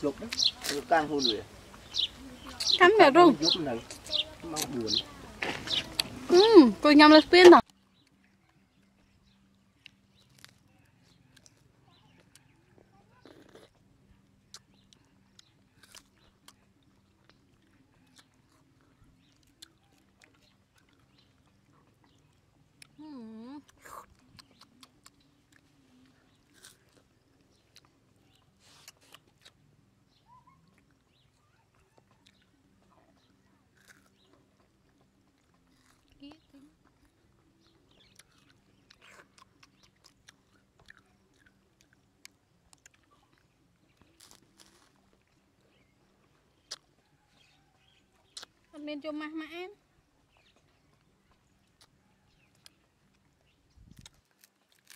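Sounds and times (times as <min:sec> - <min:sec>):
wet clicks and lip smacks: 0:23.6 - 0:25.7, 0:46.6 - 0:48.7, 0:50.4 - 0:53.2, 0:53.9 - 0:54.9.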